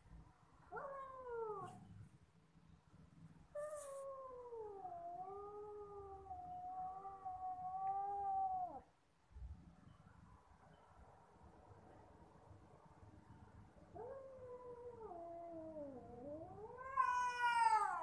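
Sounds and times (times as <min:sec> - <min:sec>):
cat meowing: 0:14.5 - 0:18.0.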